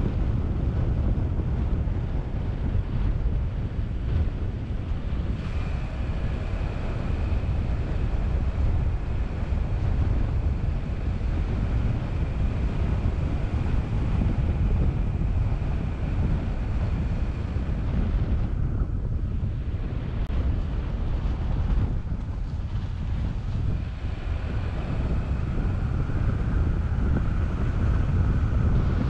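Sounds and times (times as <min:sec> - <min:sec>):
car road and tyre noise: 0:00.0 - 0:29.0
wind buffeting microphone: 0:00.0 - 0:29.0
faint high whine: 0:05.0 - 0:20.0.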